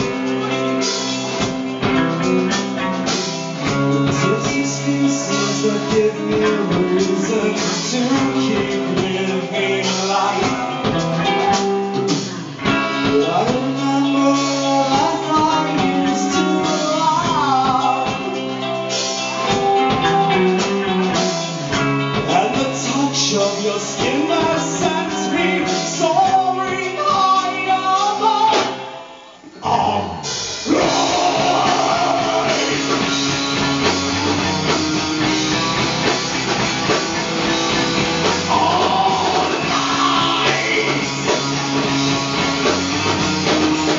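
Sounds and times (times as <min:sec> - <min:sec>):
rock band playing live: 0:00.0 - 0:43.9
person singing: 0:03.6 - 0:21.3, 0:22.1 - 0:33.7, 0:38.0 - 0:42.0.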